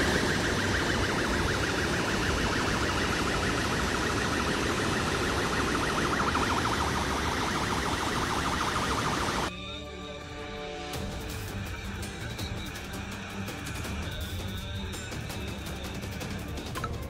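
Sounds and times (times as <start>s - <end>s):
warbling siren alarm: 0.0s - 9.5s.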